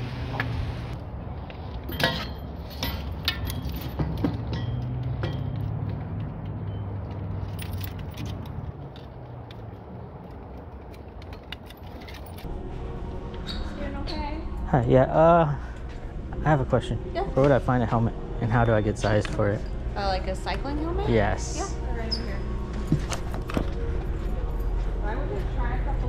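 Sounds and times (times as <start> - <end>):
bike lock clinking on metal pole: 1.9 - 5.7
steady low hum: 12.4 - 26.0.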